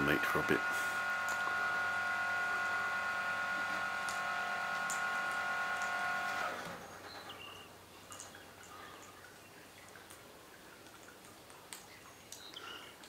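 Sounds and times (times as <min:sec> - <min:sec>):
machine whine with hiss: 0:00.0 - 0:07.1.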